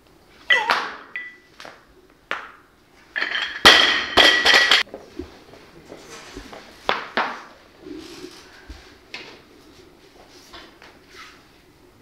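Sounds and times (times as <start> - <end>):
barbell crashing and bouncing: 3.2 - 4.8
steel bar and plates clattering: 3.2 - 4.8.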